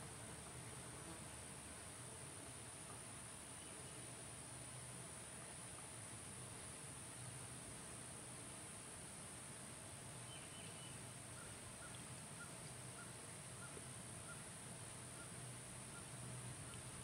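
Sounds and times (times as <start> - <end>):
turkeys clucking softly: 10.6 - 17.0.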